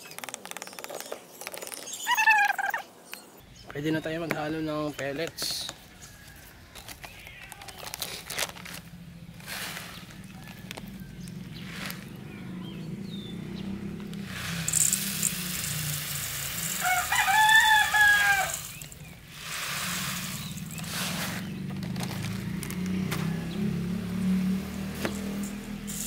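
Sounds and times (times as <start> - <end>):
rooster crowing: 6.0 - 6.8, 10.0 - 11.5, 16.6 - 19.0, 22.2 - 24.4
pellets pouring into metal bowl: 9.4 - 10.7, 11.6 - 12.1, 14.2 - 22.8.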